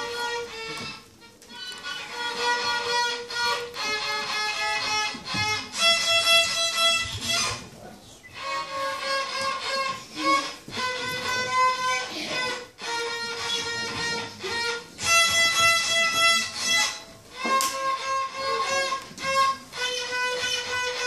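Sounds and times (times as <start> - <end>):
fiddle playing simple tune: 0.0 - 21.0.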